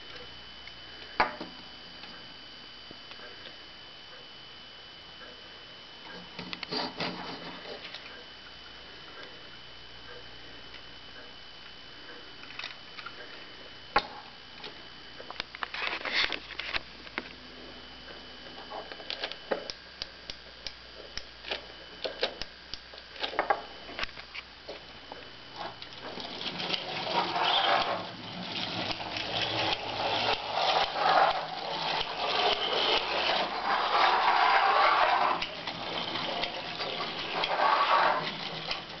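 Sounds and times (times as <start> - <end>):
wind-up toy motor whirring: 26.3 - 39.0.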